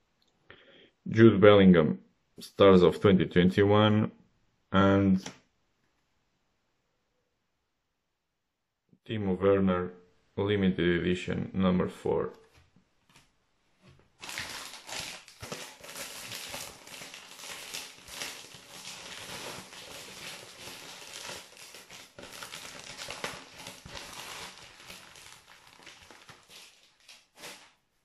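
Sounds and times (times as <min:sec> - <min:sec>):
plastic wrapping crinkling: 0:14.0 - 0:27.9.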